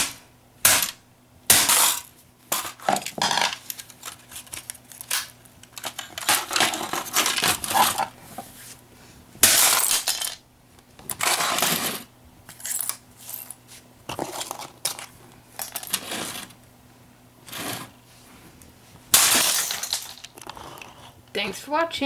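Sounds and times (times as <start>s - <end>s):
hard plastic cracking and crunching: 0.7s - 8.2s.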